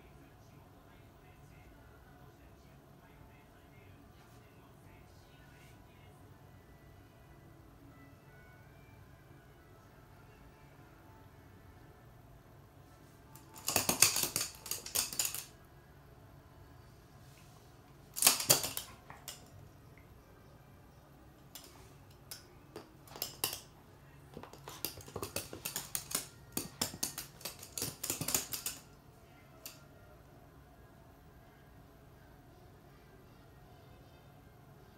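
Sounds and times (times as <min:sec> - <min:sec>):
dog claws clicking on floor: 0:13.4 - 0:15.5, 0:18.2 - 0:19.5, 0:21.5 - 0:23.7, 0:24.4 - 0:28.8.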